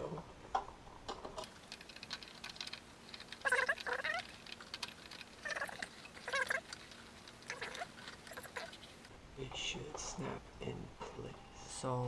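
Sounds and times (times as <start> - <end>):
sped-up high-pitched voice chattering: 3.4 - 4.3, 5.4 - 6.7.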